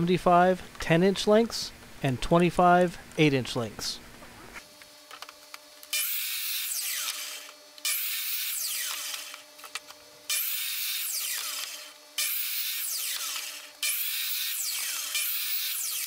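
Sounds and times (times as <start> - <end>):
miter saw cutting wood: 5.9 - 9.6, 10.3 - 16.0.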